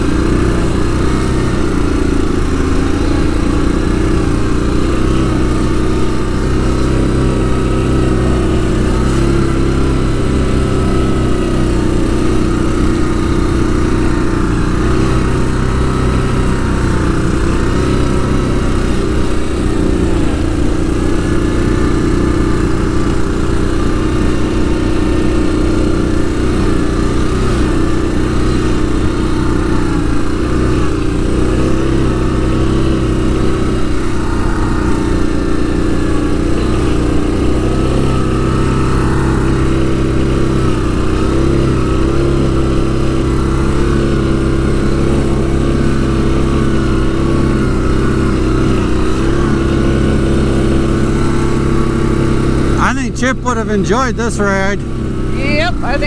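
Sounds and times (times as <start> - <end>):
atv engine running: 0.0 - 56.0.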